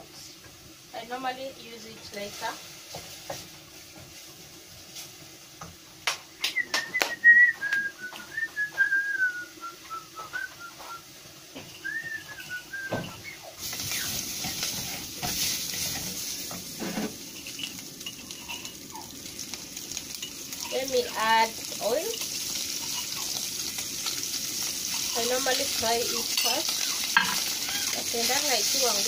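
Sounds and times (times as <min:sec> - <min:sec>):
meat sizzling in pot: 0:00.0 - 0:29.0
high wavering whistle: 0:06.4 - 0:11.1, 0:11.8 - 0:14.2.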